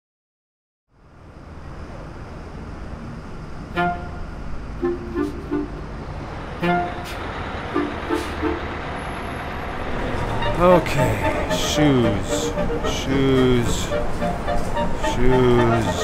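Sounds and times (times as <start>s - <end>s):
bus pulling in: 0.9s - 16.0s
city street traffic rumble: 0.9s - 16.0s
horn-like toots: 3.7s - 5.9s, 6.6s - 8.7s, 10.2s - 16.0s.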